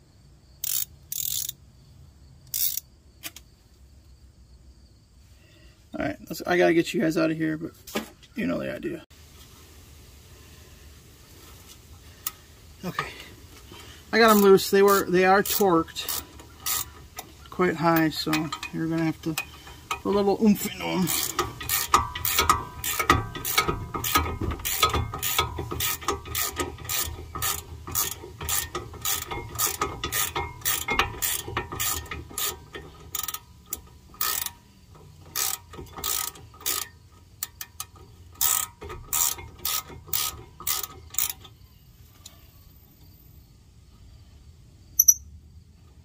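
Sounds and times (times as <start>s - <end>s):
ratchet wrench clicking: 0.6s - 1.6s, 2.5s - 3.4s, 14.2s - 41.6s, 45.0s - 45.2s.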